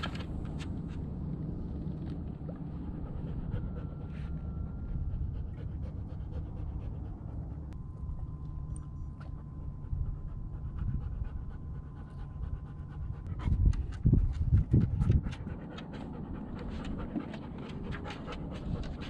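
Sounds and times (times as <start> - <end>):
dog panting: 2.7 - 7.8, 9.8 - 19.0.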